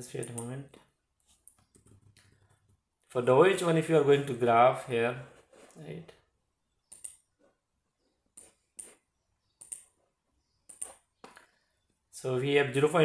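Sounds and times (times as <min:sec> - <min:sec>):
computer mouse clicking: 0:06.9 - 0:07.3, 0:09.6 - 0:10.0, 0:10.6 - 0:11.5.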